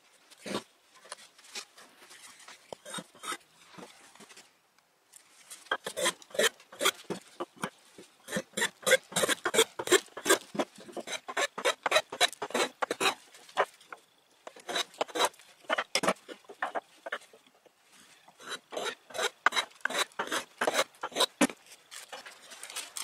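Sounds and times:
bench plane shaving wood: 0:08.3 - 0:13.2, 0:14.6 - 0:15.9, 0:18.4 - 0:21.3.

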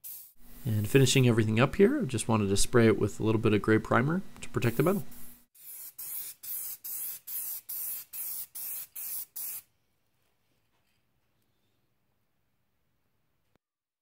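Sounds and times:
aerosol spray can hissing: 0:00.0 - 0:01.0, 0:04.6 - 0:09.7.

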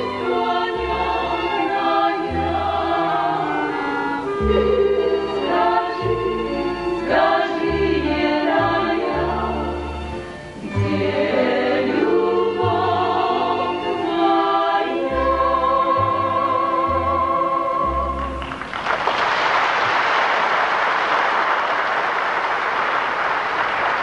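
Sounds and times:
women's choir singing folk song: 0:00.0 - 0:18.4
applause: 0:18.4 - 0:24.0.

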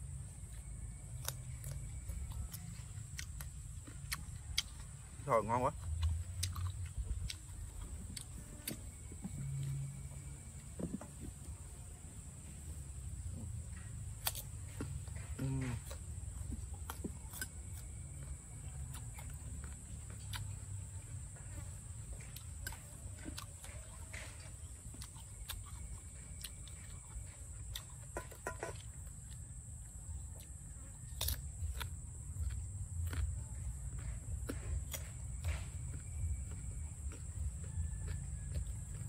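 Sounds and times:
person chewing crunchy fruit: 0:00.0 - 0:39.0.

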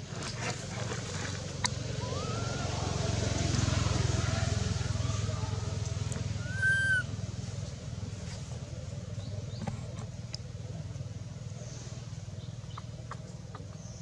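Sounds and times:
low steady rumble: 0:00.0 - 0:14.0
baby monkey squealing: 0:02.0 - 0:02.7, 0:06.4 - 0:07.1.

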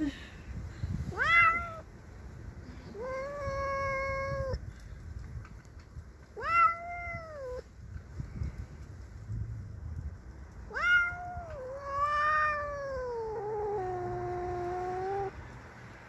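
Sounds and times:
cat yowling: 0:01.1 - 0:01.8, 0:02.9 - 0:04.6, 0:06.4 - 0:07.6, 0:10.7 - 0:15.3.

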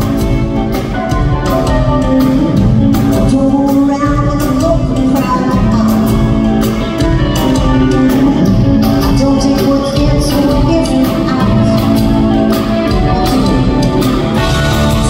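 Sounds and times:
live pop-rock band: 0:00.0 - 0:15.0
woman singing: 0:02.2 - 0:14.0.

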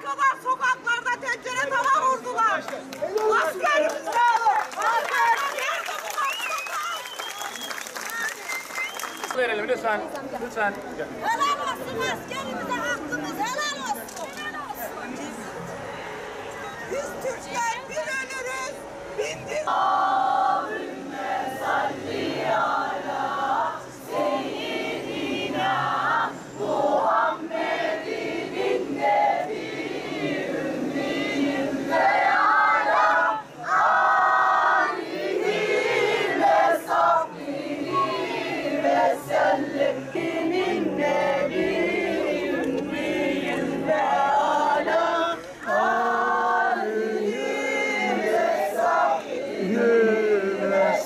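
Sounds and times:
crowd chanting in unison: 0:18.8 - 0:51.0.

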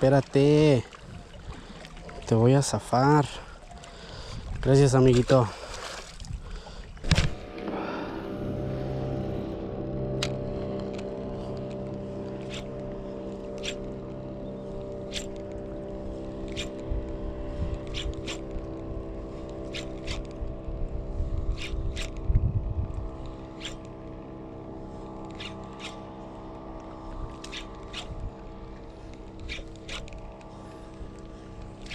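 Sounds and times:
motor drone: 0:00.0 - 0:31.9
low rumble: 0:06.3 - 0:31.9.

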